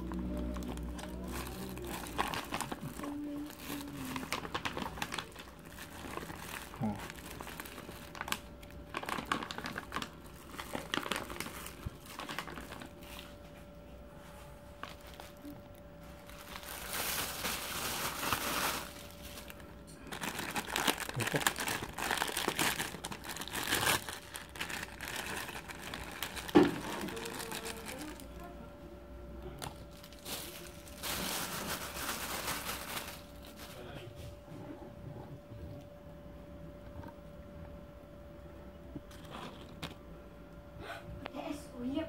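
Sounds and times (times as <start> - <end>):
paper wrapper crinkling: 0.0 - 13.5, 14.7 - 28.4, 29.6 - 34.0
plastic bag crinkling: 0.0 - 13.5, 14.7 - 28.4, 29.6 - 34.0
faint steady hum: 0.0 - 42.0.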